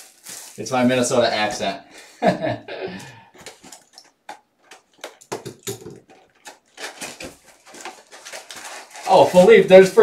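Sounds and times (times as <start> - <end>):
cardboard box crinkling and rustling: 6.6 - 10.0.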